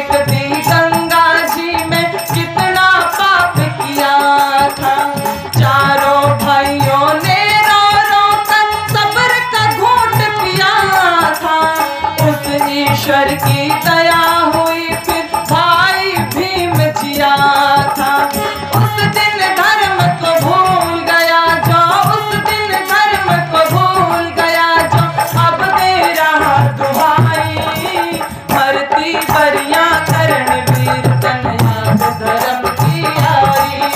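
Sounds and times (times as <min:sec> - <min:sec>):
hand drum beat: 0:00.0 - 0:33.9
harmonium melody: 0:00.0 - 0:33.9
woman singing: 0:00.0 - 0:33.9.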